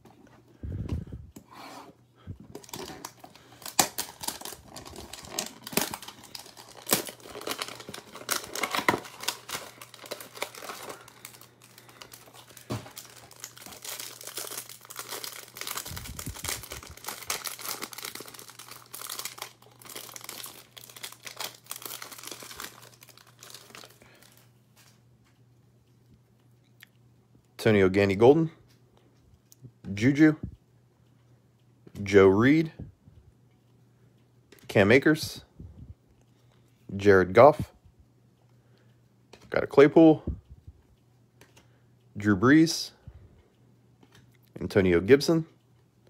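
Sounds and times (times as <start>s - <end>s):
foil pack crinkling: 2.5s - 24.9s.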